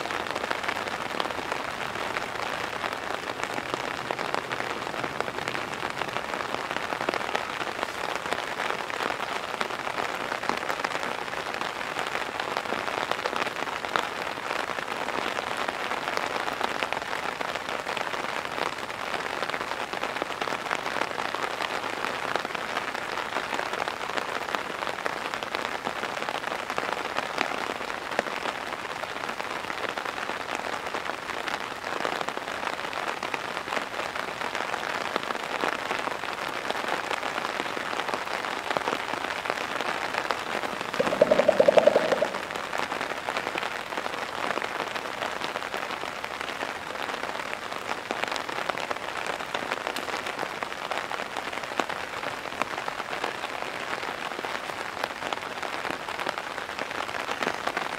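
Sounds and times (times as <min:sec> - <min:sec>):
heavy rain: 0:00.0 - 0:57.9
gorilla chest drumming: 0:40.8 - 0:42.5.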